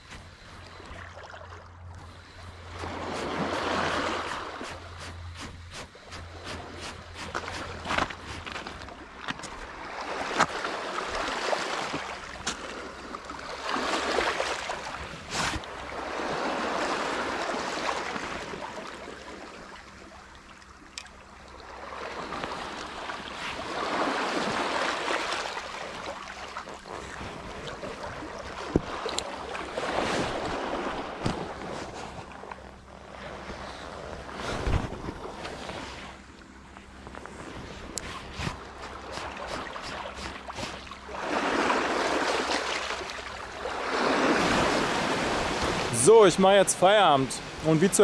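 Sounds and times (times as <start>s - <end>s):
waves washing over pebbles: 2.6s - 19.6s, 21.6s - 32.0s, 38.3s - 48.0s.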